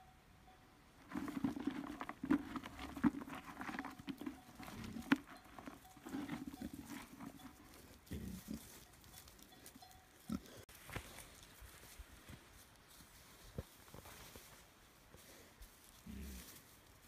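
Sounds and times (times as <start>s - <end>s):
rustling: 1.0s - 17.0s
pigs grunting: 4.5s - 8.8s
footsteps on grass: 10.7s - 17.0s.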